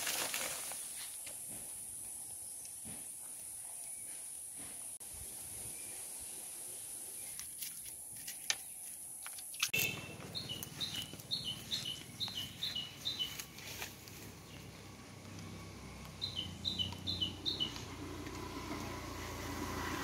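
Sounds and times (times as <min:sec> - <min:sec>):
bird two-note chirp: 0:09.8 - 0:11.0.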